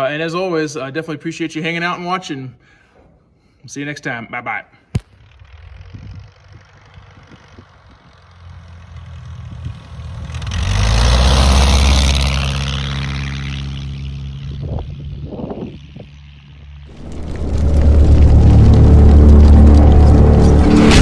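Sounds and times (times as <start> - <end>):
light airplane passing: 4.8 - 21.0.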